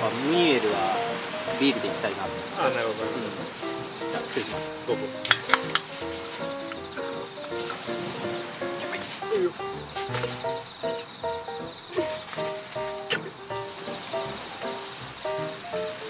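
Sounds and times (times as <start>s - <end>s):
crickets trilling: 0.0s - 16.0s
light background music: 0.0s - 16.0s
drink cans clinking: 3.8s - 6.7s.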